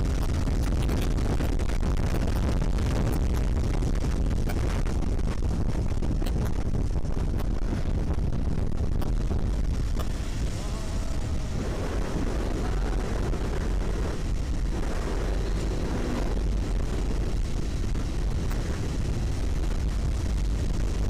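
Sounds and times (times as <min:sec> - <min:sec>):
motorcycle engine running: 0:00.0 - 0:21.0
wind rumble on microphone: 0:00.0 - 0:21.0.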